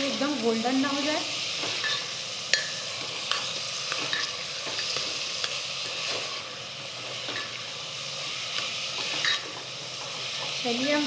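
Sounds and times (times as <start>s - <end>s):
onions sizzling in hot oil: 0.0s - 11.0s
steel ladle scraping pot: 9.0s - 9.6s.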